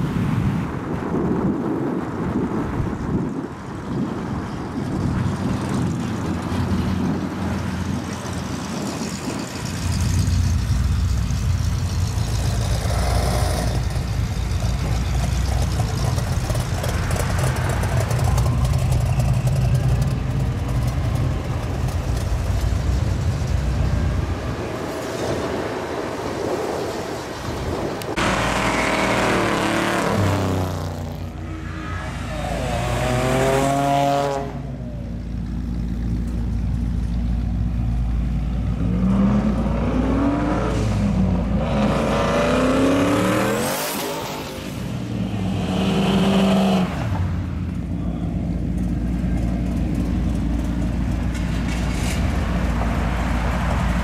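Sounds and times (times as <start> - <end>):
cars driving past: 0.0 - 54.0
low engine rumble: 2.6 - 28.7, 34.5 - 39.8, 47.0 - 54.0.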